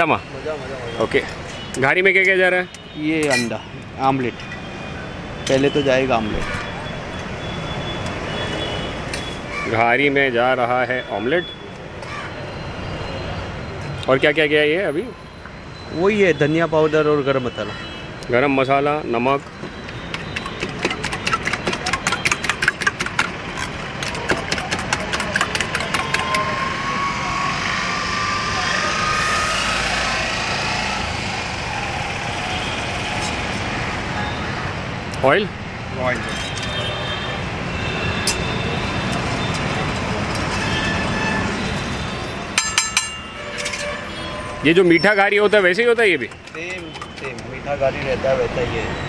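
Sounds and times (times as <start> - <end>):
spoon clinking against metal bowl: 3.2 - 3.6, 42.6 - 44.0.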